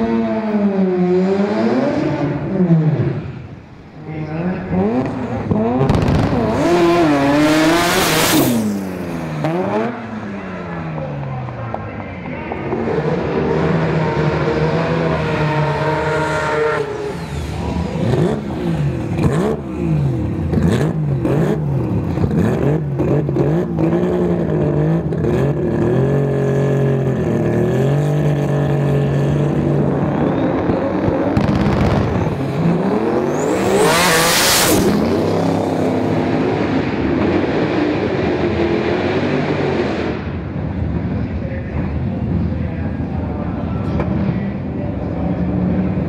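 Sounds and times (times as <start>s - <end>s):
drag racing engines revving: 0.0s - 46.0s
car launching rush: 4.7s - 10.9s, 29.0s - 40.5s.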